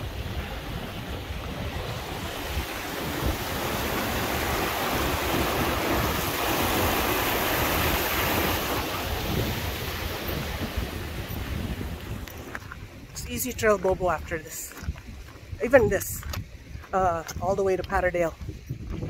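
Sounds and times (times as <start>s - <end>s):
stream rushing over rocks: 0.0s - 14.7s
wind buffeting microphone: 0.0s - 19.0s.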